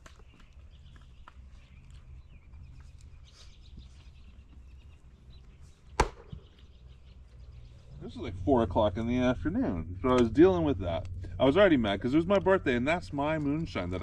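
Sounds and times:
birds chirping: 0:00.0 - 0:14.0
low steady rumble: 0:04.3 - 0:14.0
axe striking firewood: 0:06.0 - 0:06.4.

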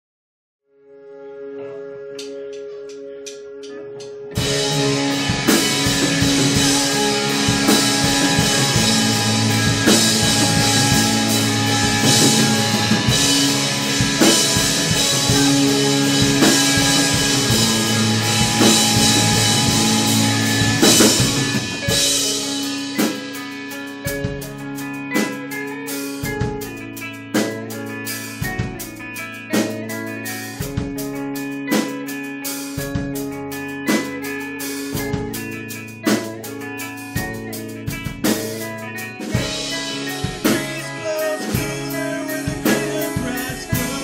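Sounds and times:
electric guitar chord ringing: 0:00.8 - 0:44.0
rock band playing live: 0:02.0 - 0:44.0.

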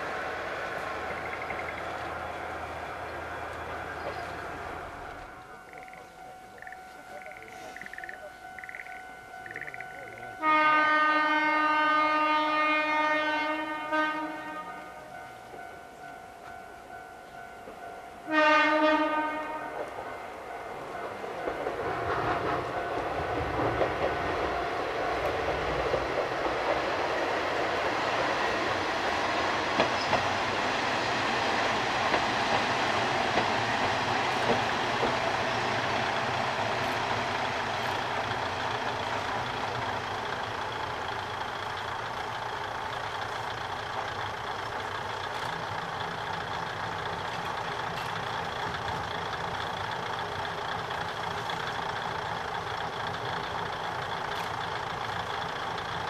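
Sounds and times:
train wheels knocking: 0:00.0 - 0:10.2, 0:19.7 - 0:56.0
diesel railcar engines running: 0:00.0 - 0:56.0.

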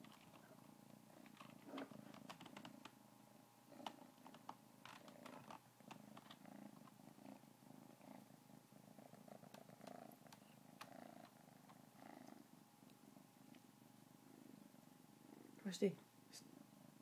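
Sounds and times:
kitten purring: 0:00.0 - 0:03.0, 0:03.6 - 0:15.7, 0:16.3 - 0:17.0
rustling: 0:03.7 - 0:15.6.

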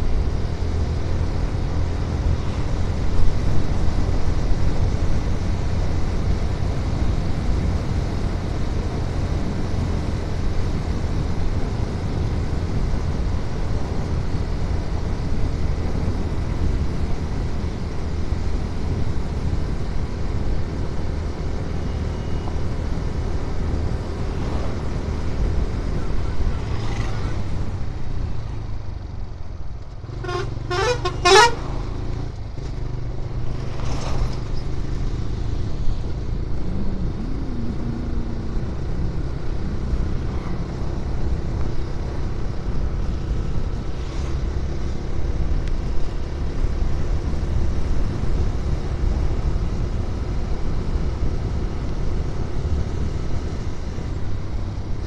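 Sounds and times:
wind and road rush: 0:00.0 - 0:55.0
vehicle horn toots: 0:30.1 - 0:31.6.

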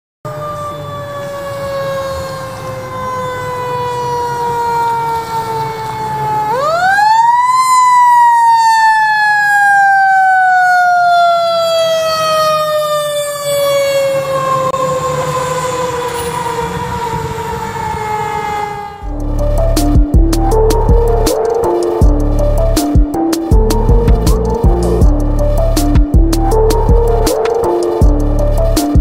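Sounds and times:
low engine rumble: 0:19.0 - 0:29.0.

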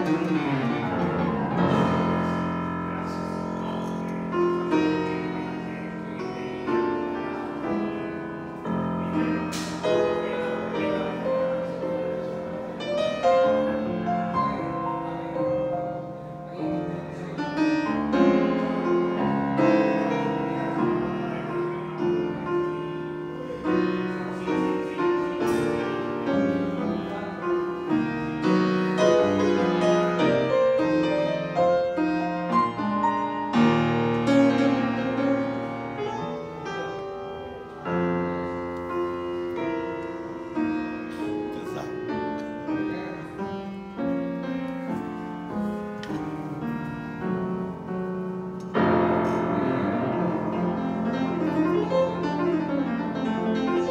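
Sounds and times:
grand piano playing: 0:00.0 - 0:53.9.

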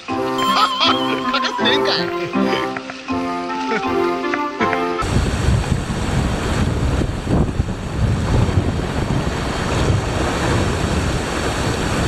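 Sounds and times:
sea waves washing against rocks: 0:05.0 - 0:12.0
wind buffeting microphone: 0:05.0 - 0:12.0.

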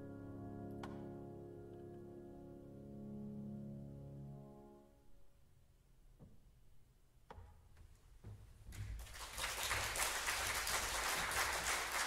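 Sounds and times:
audience applause: 0:09.0 - 0:12.0.

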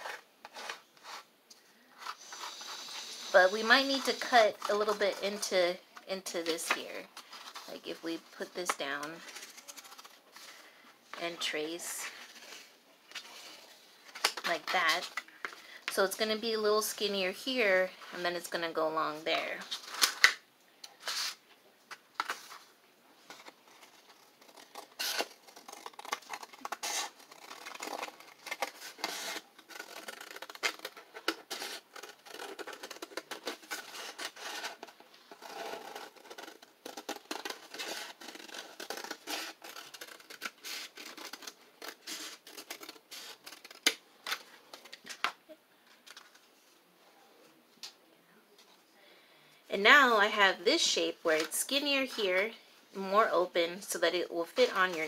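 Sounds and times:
stiff paper crackling: 0:08.5 - 0:10.6, 0:19.7 - 0:45.4.

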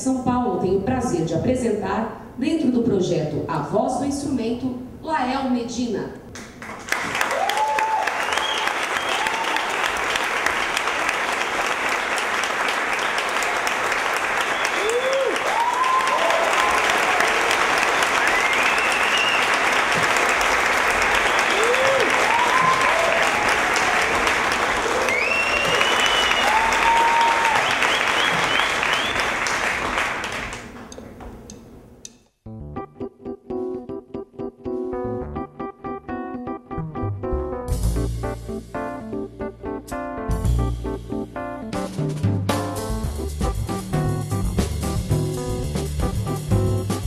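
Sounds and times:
audience applauding: 0:06.4 - 0:31.0
crowd cheering: 0:06.8 - 0:30.7.

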